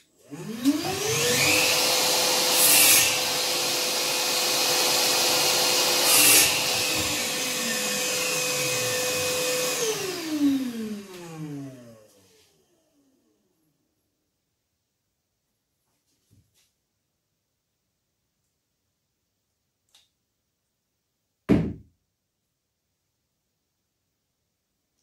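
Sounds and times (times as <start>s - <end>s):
shop vacuum motor whining: 0.2s - 13.2s.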